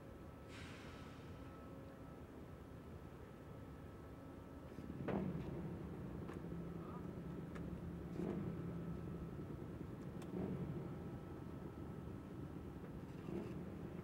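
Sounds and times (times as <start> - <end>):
faint engine running: 5.2 - 14.0.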